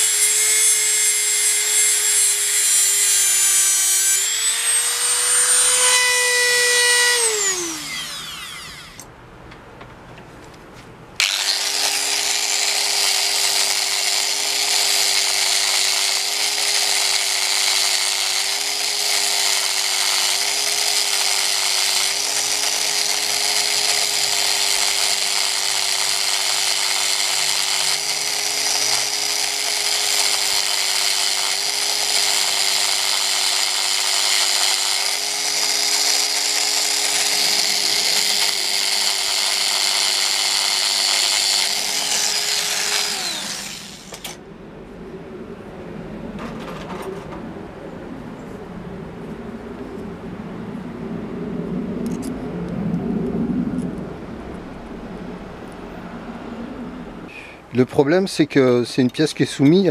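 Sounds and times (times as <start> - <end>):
rotary tool grinding metal: 0.0 - 9.1, 11.2 - 44.4.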